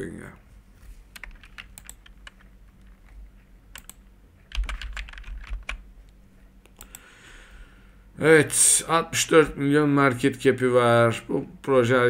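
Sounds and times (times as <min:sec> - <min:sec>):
keyboard typing clicks: 0:01.1 - 0:05.8, 0:06.6 - 0:07.1.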